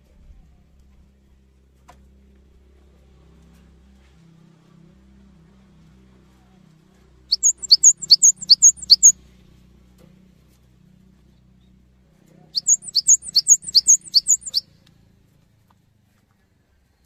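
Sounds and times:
bird singing two-note phrase: 12.6s - 14.6s.

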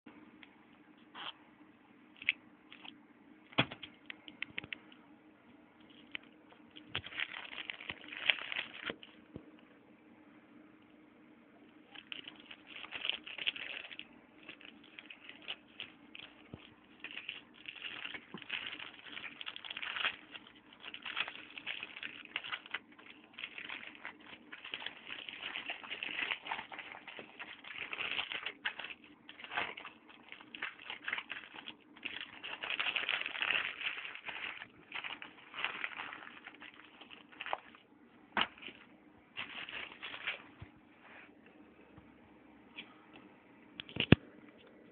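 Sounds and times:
foil wrapper crinkling and tearing: 5.9s - 9.2s, 11.9s - 37.8s, 38.4s - 38.8s, 39.4s - 40.6s.

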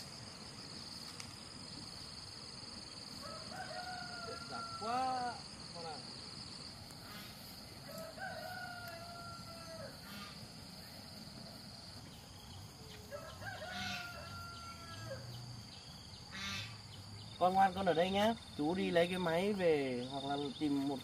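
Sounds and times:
rooster crowing: 3.2s - 5.5s, 7.1s - 10.4s, 13.0s - 15.4s.

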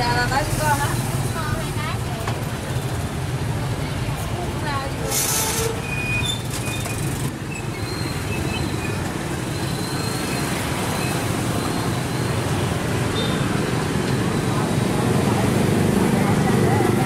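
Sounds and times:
motorbikes riding past: 9.0s - 17.0s.

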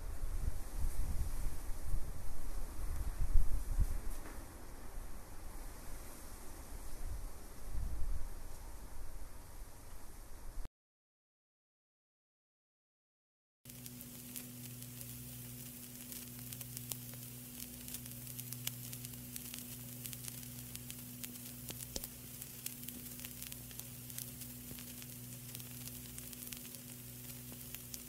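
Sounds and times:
low hum: 13.7s - 28.0s
vinyl record crackle and hiss: 13.7s - 28.0s.

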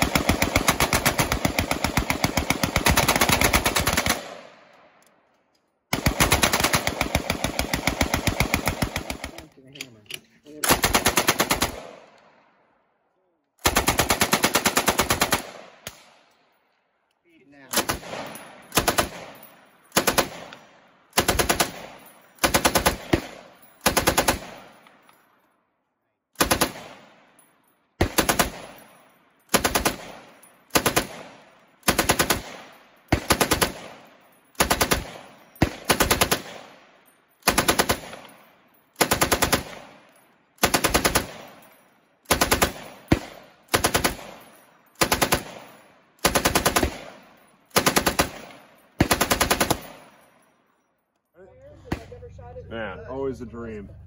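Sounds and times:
machine guns firing: 0.0s - 4.6s, 5.9s - 9.5s, 10.6s - 12.1s, 13.6s - 16.2s, 17.7s - 24.9s, 26.4s - 27.3s, 28.0s - 50.2s.

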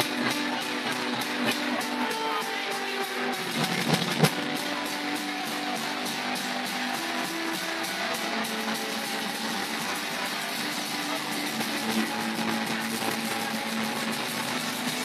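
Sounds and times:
acoustic guitar strumming: 0.0s - 15.0s
man singing into a microphone: 7.3s - 15.0s.

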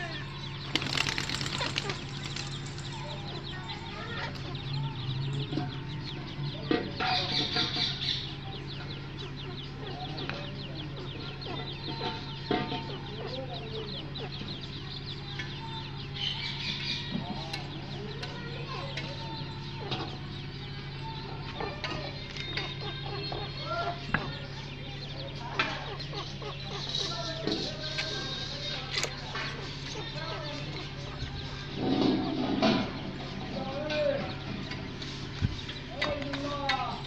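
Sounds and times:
rustling or flapping: 0.7s - 3.2s.

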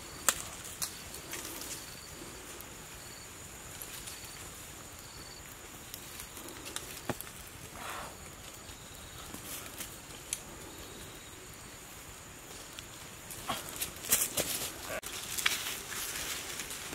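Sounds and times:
fire popping: 0.0s - 16.9s
wood fire crackling: 0.0s - 16.9s.

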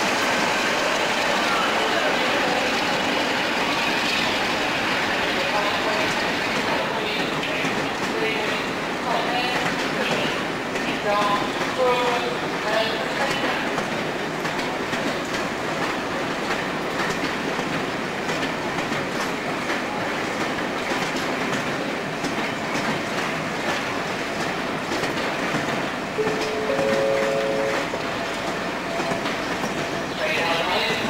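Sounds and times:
train rumbling past: 0.0s - 31.0s
two steady tones: 26.2s - 27.9s.

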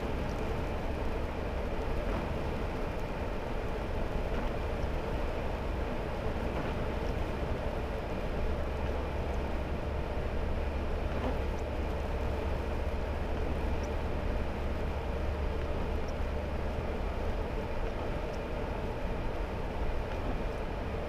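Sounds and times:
tyre noise on wet road: 0.0s - 21.0s
vehicle engine rumble: 0.0s - 21.0s
faint light tick: 6.5s - 7.3s, 13.3s - 14.0s, 15.5s - 16.3s, 17.3s - 18.5s, 20.0s - 20.5s.

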